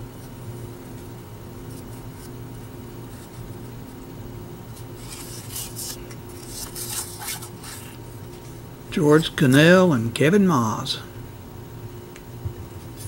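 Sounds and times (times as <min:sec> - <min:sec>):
steady low hum: 0:00.0 - 0:13.0
cards sliding and scraping: 0:04.8 - 0:08.6.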